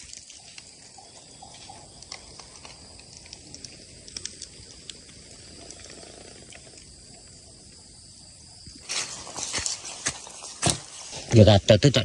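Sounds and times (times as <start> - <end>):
faint ticks: 0.0 - 7.3
high-pitched insect chorus: 0.0 - 12.0
footsteps in dry leaves: 8.8 - 11.3.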